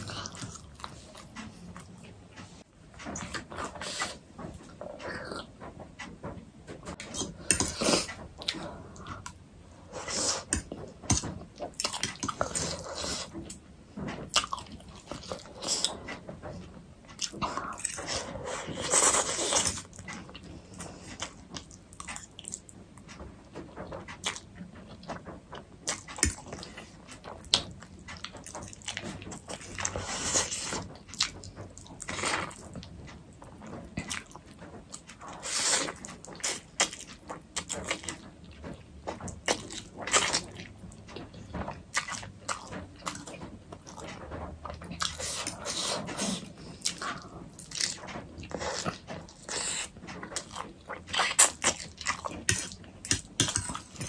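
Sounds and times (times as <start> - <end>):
person chewing and smacking: 0.0 - 54.0.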